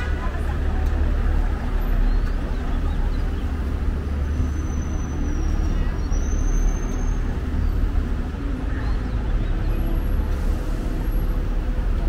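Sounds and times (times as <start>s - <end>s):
city bus rumbling: 0.0s - 12.0s.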